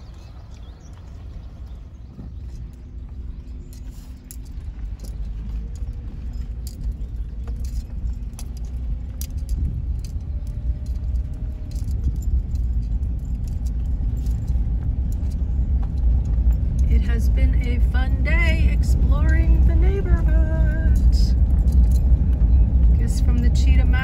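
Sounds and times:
road noise inside car cabin: 0.0s - 24.0s
jingling and rattling clicks: 1.6s - 24.0s.

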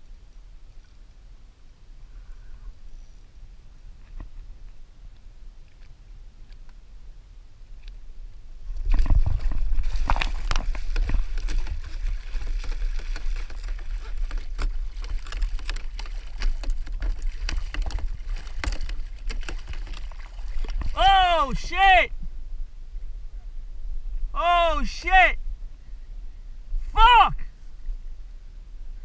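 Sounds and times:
fish thrashing water splashing: 8.9s - 21.0s.

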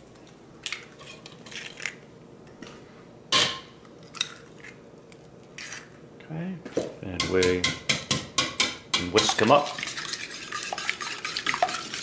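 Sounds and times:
whisk clinking in bowl: 7.3s - 12.0s.

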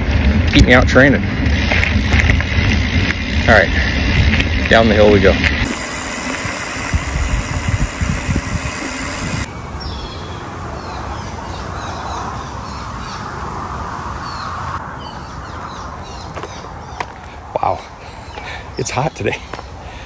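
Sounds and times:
bike rolling on gravel: 0.0s - 9.5s
wind rush: 0.0s - 9.5s
birds chirping: 14.2s - 20.0s.

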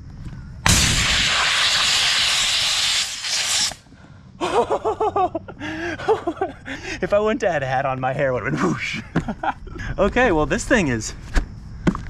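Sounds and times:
air hissing from valve: 0.6s - 3.9s.

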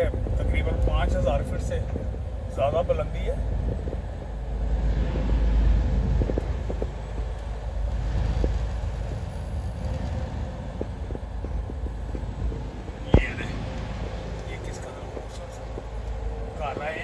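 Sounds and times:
car driving on wet road: 3.6s - 17.0s.

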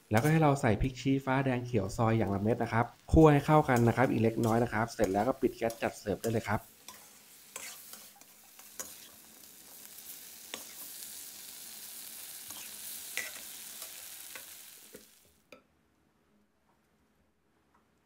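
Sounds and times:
food sizzling in a wok: 0.0s - 15.4s
metal spatula scraping a pan: 3.3s - 11.1s, 12.4s - 14.6s.

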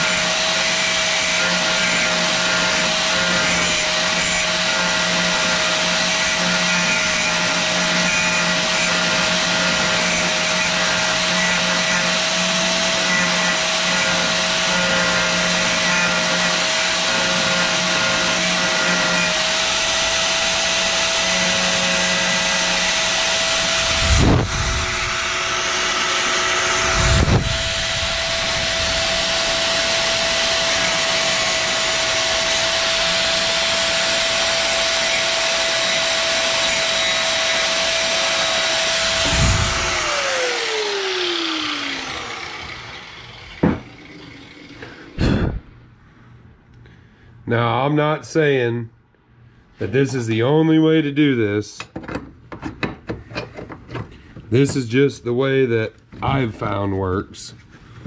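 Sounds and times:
cutting wheel grinding metal: 0.0s - 45.4s
low thumps: 39.1s - 40.0s.

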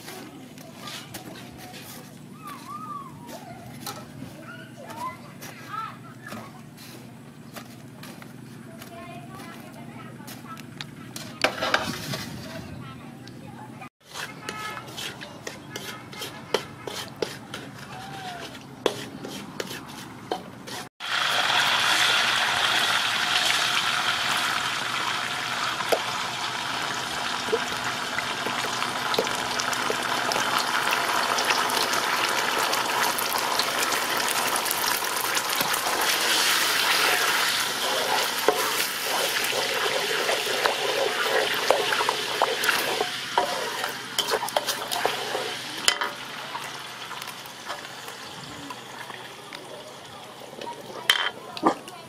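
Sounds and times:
spatula scraping a wok: 0.0s - 2.7s, 3.7s - 12.8s, 14.0s - 20.9s, 26.8s - 48.4s
sauce sizzling in hot oil: 21.0s - 51.0s.

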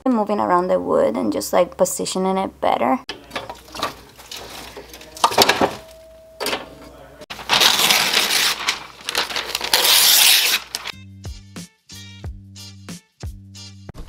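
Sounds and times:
logs scraping and knocking: 3.1s - 5.9s
paper being crumpled: 3.5s - 5.8s, 7.3s - 10.9s.

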